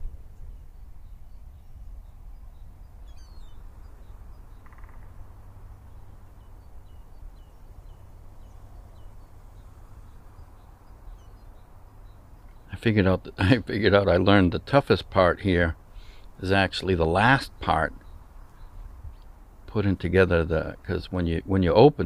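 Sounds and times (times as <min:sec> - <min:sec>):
faint bird calls: 0:00.0 - 0:14.3, 0:15.8 - 0:19.8.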